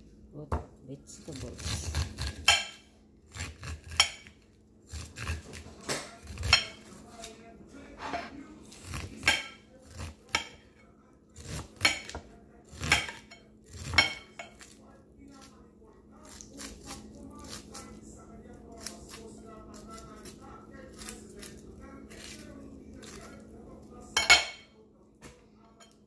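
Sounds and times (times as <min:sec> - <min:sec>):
dishes and utensils clinking: 0:05.5 - 0:06.9, 0:11.8 - 0:14.7, 0:24.1 - 0:24.8, 0:25.6 - 0:26.0.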